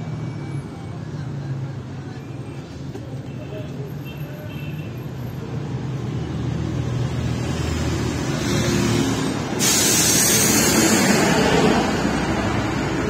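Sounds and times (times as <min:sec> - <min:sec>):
bus engine rumble: 0:00.0 - 0:13.0
loud air brake hiss: 0:09.2 - 0:11.9.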